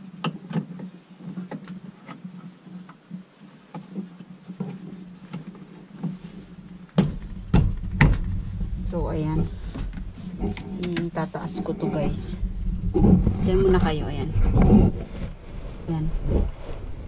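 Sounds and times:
steady low hum: 0:00.0 - 0:17.0
heavy thumps: 0:04.6 - 0:17.0.

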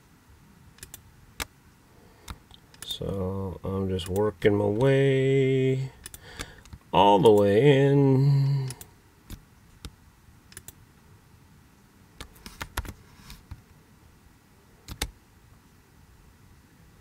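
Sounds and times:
computer mouse and keyboard clicks: 0:10.5 - 0:10.8, 0:12.2 - 0:13.6, 0:14.8 - 0:15.2.

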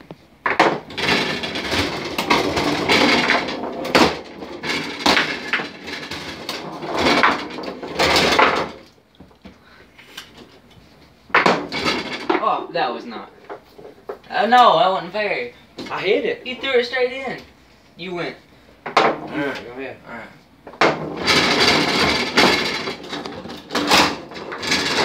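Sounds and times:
foosball ball clattering: 0:00.1 - 0:09.4, 0:11.3 - 0:12.7, 0:13.4 - 0:14.3, 0:18.8 - 0:19.7, 0:20.6 - 0:25.0
foosball rods sliding and spinning: 0:00.1 - 0:14.6, 0:18.7 - 0:19.9, 0:20.6 - 0:25.0.

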